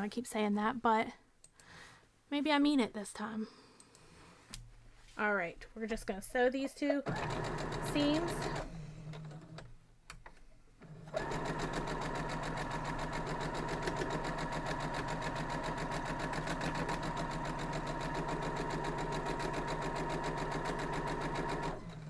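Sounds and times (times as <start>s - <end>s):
sewing machine stitching: 7.1s - 9.7s, 10.8s - 22.0s.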